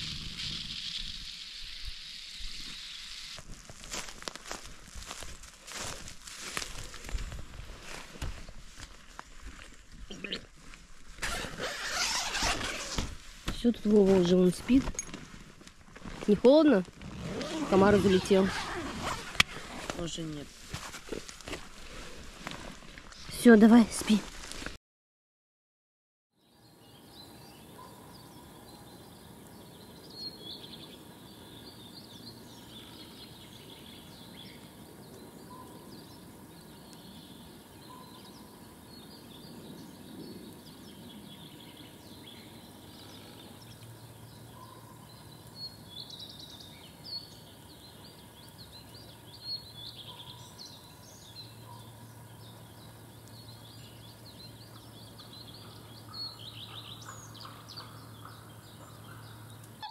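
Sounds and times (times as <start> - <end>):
outdoor background hiss: 0.0 - 24.6, 26.4 - 59.9
bird calls and song: 26.4 - 59.9.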